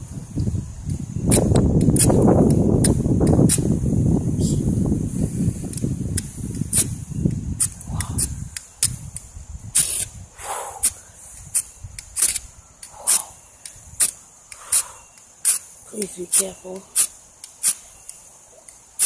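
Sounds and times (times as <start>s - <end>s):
striker scraping fire-starter rod: 11.3s - 19.0s.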